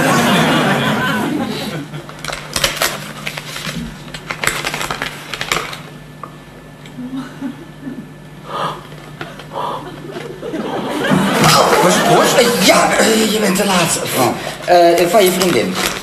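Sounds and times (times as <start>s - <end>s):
paper envelope rustling: 2.1s - 5.9s, 14.6s - 16.0s.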